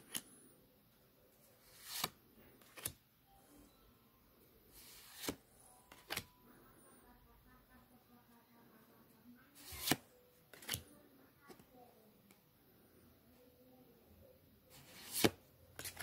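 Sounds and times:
trading cards sliding: 1.6s - 3.0s, 4.8s - 6.3s, 9.6s - 10.8s, 14.7s - 16.0s.

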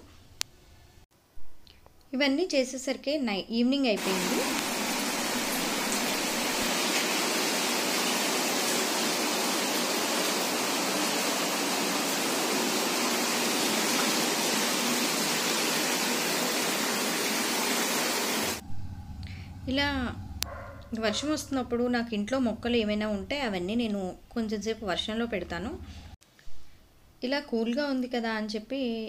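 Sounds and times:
heavy rain: 4.0s - 18.6s.

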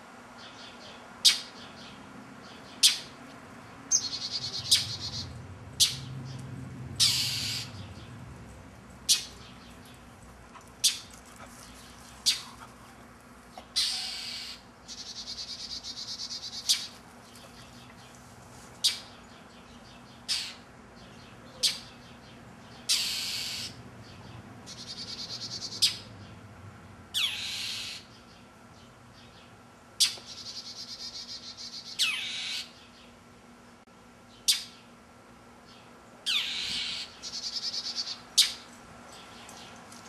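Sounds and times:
bird harsh scolding calls: 3.9s - 6.1s, 7.0s - 7.8s, 12.2s - 12.6s, 13.7s - 17.0s, 20.2s - 20.6s, 22.8s - 23.8s, 27.2s - 28.1s, 30.0s - 32.8s, 36.3s - 38.6s
bird raspy pulsing call: 7.0s - 7.7s, 13.8s - 16.9s, 22.9s - 23.8s, 27.2s - 28.1s, 30.0s - 32.7s, 36.3s - 38.6s.

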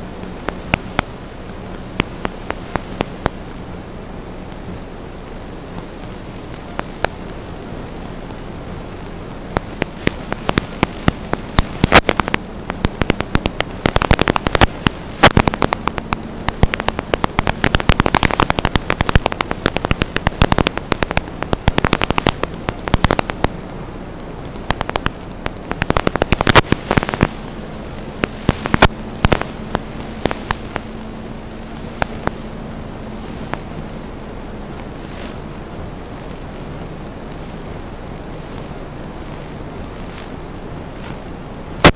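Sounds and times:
sharp clicks and pops: 0.0s - 3.7s, 4.4s - 41.9s
steady static hiss: 0.0s - 41.9s.

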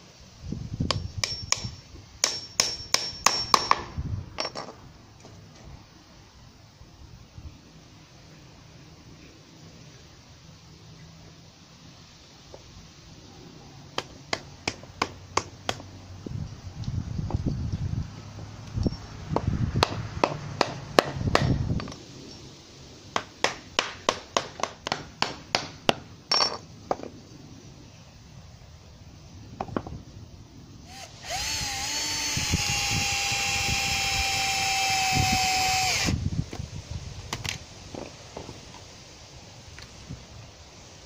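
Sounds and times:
cordless drill whining: 30.9s - 36.2s.

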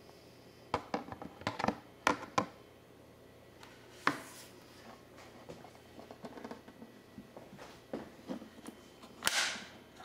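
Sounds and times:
record player case clicks and knocks: 0.8s - 2.5s.

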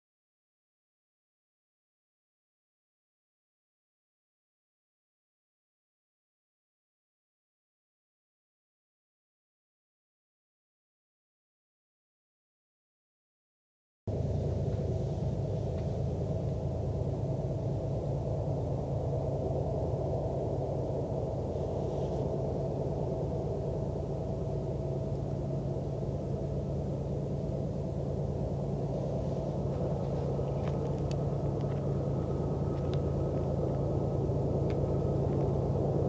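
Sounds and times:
distant diesel locomotives rumbling: 14.1s - 36.0s.

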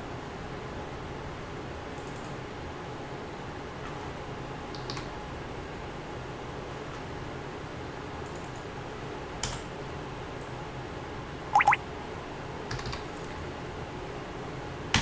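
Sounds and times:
keyboard and mouse clicks: 11.6s - 11.8s
quick pitched blips: 11.6s - 11.8s.

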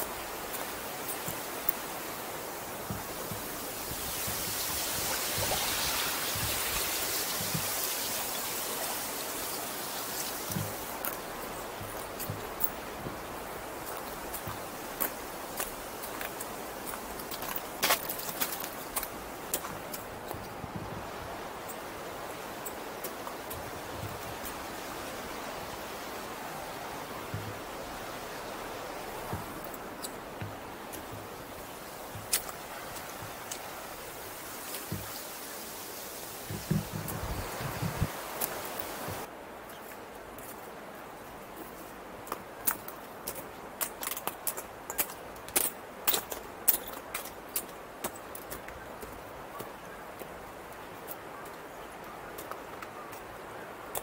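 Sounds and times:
river water rushing: 0.0s - 54.0s
soft knocks: 36.5s - 38.1s.

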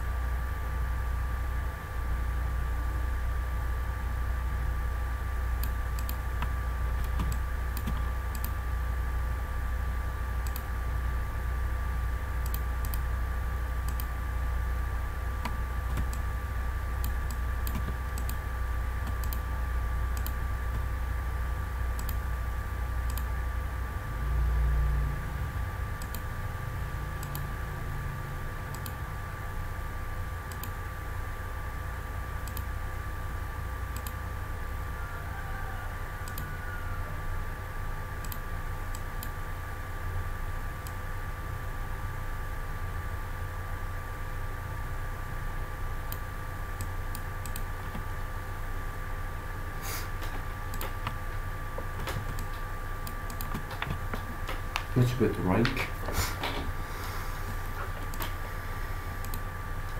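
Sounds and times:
steady low hum: 0.0s - 59.9s
mouse and keyboard clicks: 5.6s - 8.6s, 50.2s - 51.2s.

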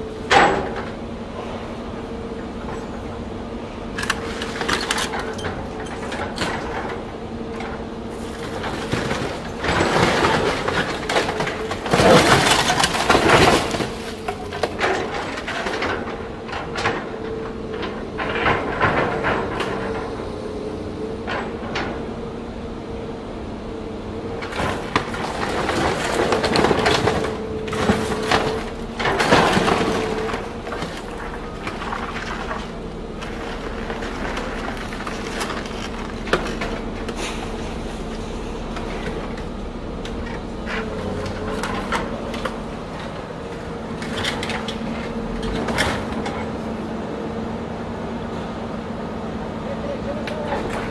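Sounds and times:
excavator engine and hydraulics drone: 0.0s - 50.9s
metal crunching and cracking: 3.9s - 20.1s, 24.4s - 46.6s, 50.2s - 50.9s.

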